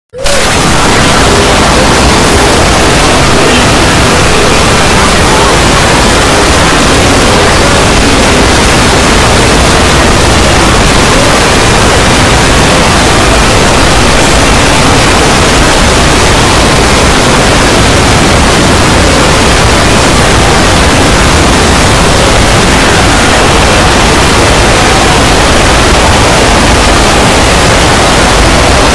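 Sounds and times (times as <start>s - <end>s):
wall of harsh noise: 0.1s - 28.9s.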